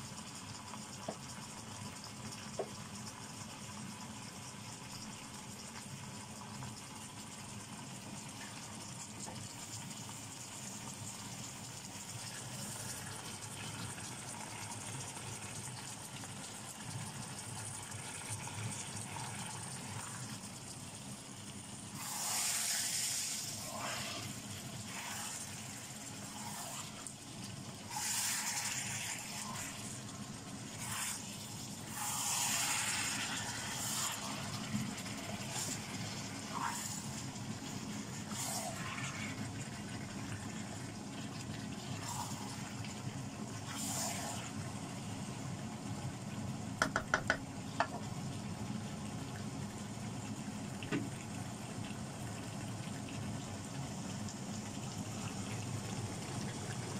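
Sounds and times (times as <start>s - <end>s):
chicken sizzling in a wok: 0.0s - 56.9s
wooden spoon stirring: 46.8s - 48.0s.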